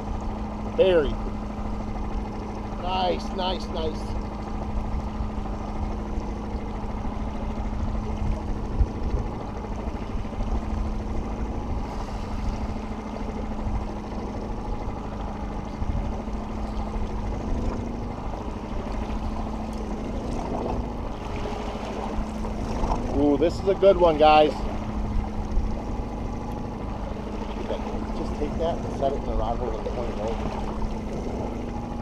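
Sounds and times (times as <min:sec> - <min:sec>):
outboard motor running: 0:00.0 - 0:32.0.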